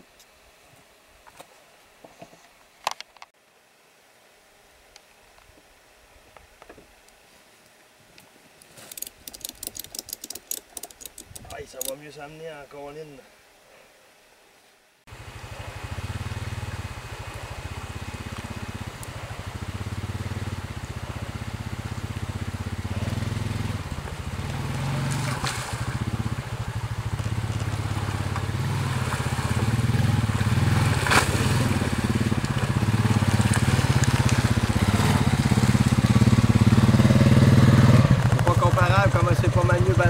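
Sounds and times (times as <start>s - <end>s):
atv engine running: 8.9s - 11.9s, 15.1s - 40.0s.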